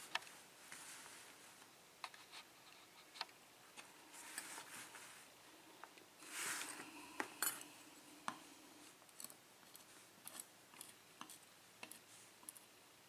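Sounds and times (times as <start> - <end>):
soft rustle: 0.0 - 5.5, 6.2 - 7.8.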